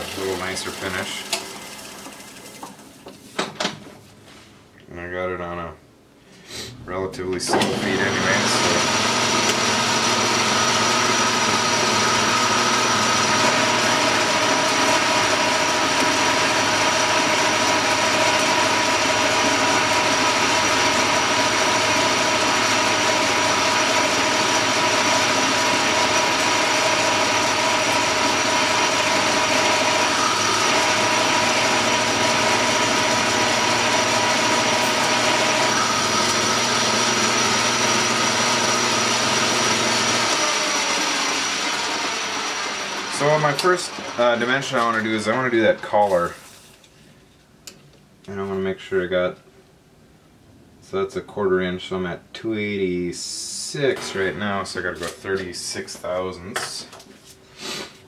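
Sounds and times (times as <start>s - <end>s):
metal lathe running: 7.5s - 44.9s.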